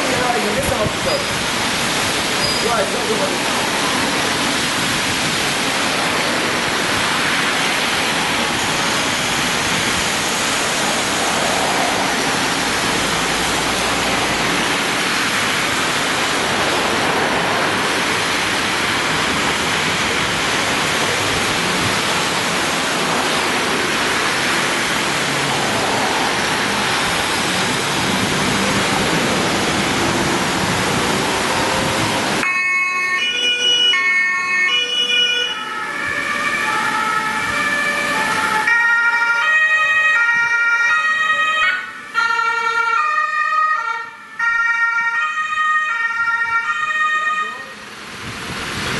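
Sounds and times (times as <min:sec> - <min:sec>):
rain and tyres on wet road: 0:00.0 - 0:48.9
emergency vehicle siren: 0:31.7 - 0:47.9.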